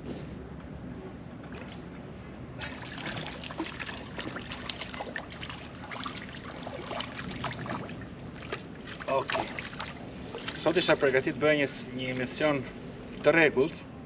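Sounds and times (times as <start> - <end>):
water lapping among rocks: 2.6 - 11.0.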